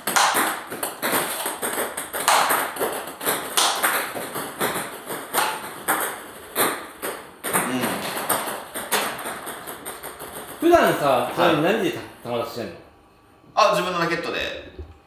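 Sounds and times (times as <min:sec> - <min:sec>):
table tennis balls clicking: 0:00.0 - 0:11.9.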